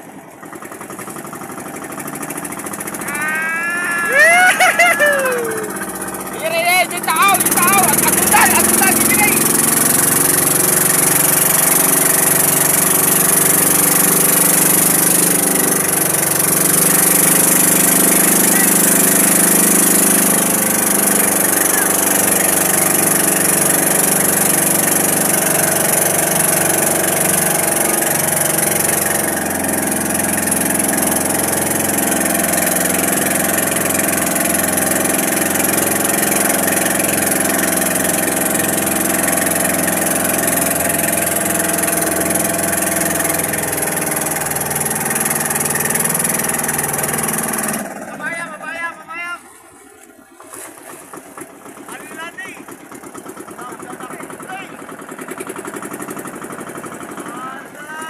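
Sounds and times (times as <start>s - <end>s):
boat engine running: 0.0s - 58.0s.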